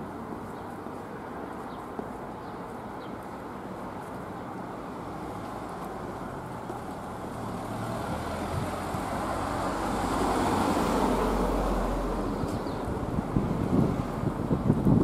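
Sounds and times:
car driving past: 0:06.3 - 0:12.5.

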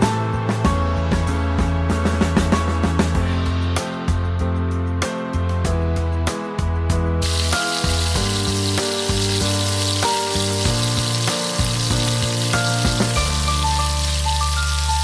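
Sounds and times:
background music with bass line: 0:00.0 - 0:15.0
sauce sizzling in a frying pan: 0:07.2 - 0:15.0.

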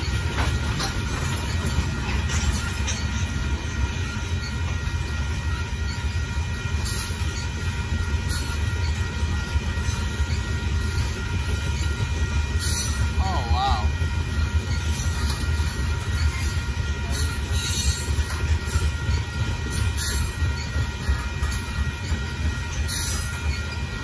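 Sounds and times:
train wheels rumbling on rails: 0:00.0 - 0:24.0.

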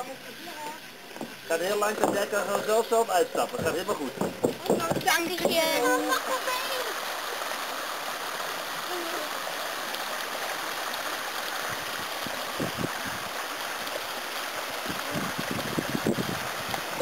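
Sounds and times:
stream running over stones: 0:00.0 - 0:17.0
low thumps: 0:01.2 - 0:02.6, 0:03.4 - 0:05.7.

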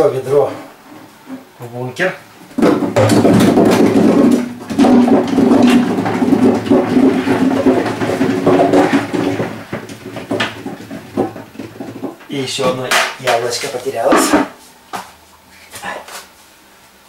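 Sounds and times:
apples clattering in metal hopper: 0:02.5 - 0:14.6.

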